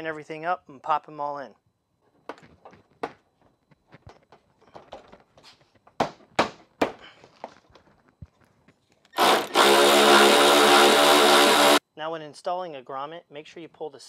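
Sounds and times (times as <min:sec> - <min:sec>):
cordless power tool starting: 0:09.2 - 0:11.8.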